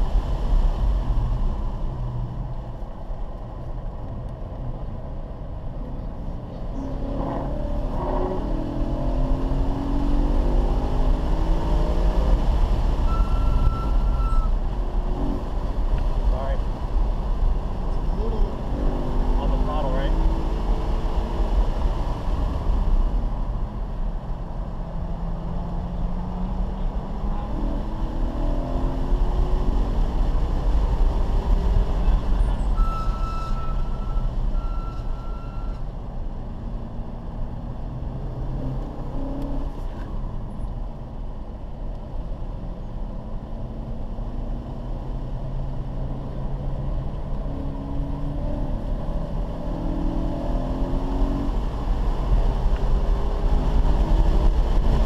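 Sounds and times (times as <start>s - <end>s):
car engine and road noise: 0.0s - 55.0s
short electronic beeps: 13.1s - 14.5s, 32.7s - 35.8s.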